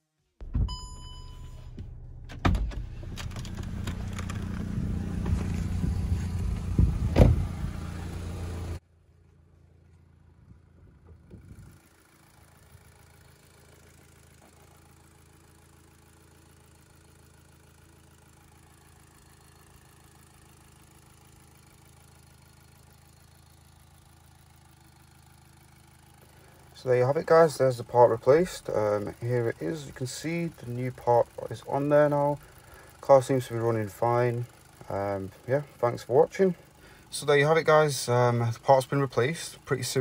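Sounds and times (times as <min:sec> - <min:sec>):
sharp thump: 0:00.4 - 0:03.1, 0:05.2 - 0:07.6
car engine idling: 0:00.4 - 0:40.0
faint engine hum: 0:00.6 - 0:40.0.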